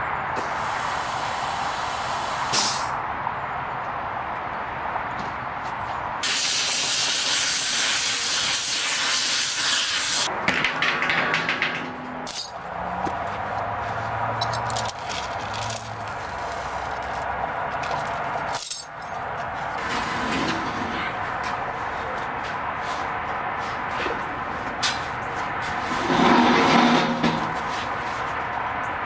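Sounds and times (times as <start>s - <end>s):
loud steady air hiss: 0.4s - 3.0s, 6.2s - 10.3s
sharp metallic clicks and knocks: 10.3s - 12.6s
rough rushing noise: 25.7s - 27.9s.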